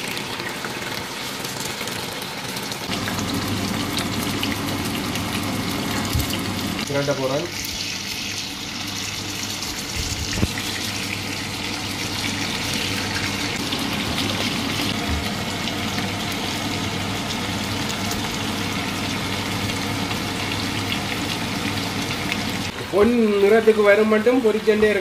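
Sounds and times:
meat sizzling in hot oil: 0:00.0 - 0:24.6.

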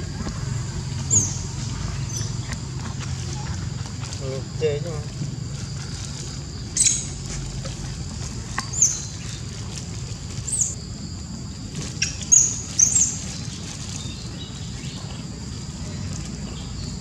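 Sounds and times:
monkeys squeaking: 0:06.8 - 0:07.2.

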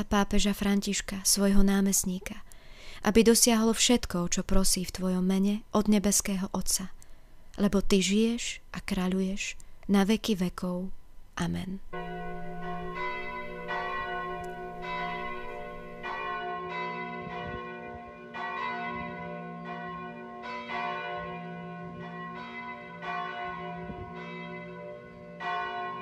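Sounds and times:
church bells ringing: 0:11.9 - 0:26.0.

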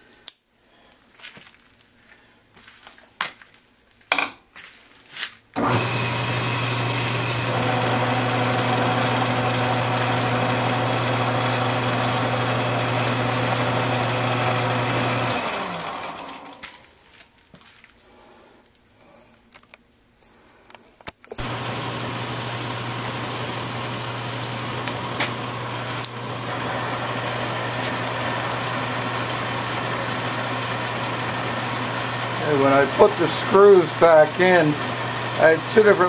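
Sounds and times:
lathe motor humming: 0:05.6 - 0:16.7, 0:21.4 - 0:36.0.

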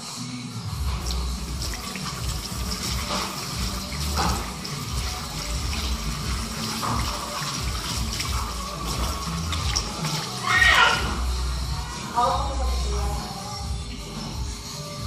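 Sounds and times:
faucet water splashing in sink: 0:00.9 - 0:11.3.

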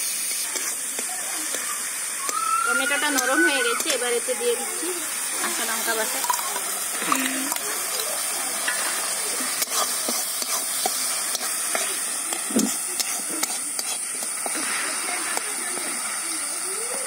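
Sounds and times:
food sizzling in oil: 0:00.0 - 0:17.0
metal spatula scraping a pan: 0:08.6 - 0:14.9.

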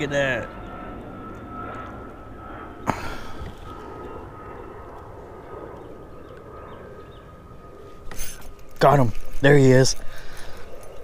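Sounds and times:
airplane droning overhead: 0:00.0 - 0:11.0.

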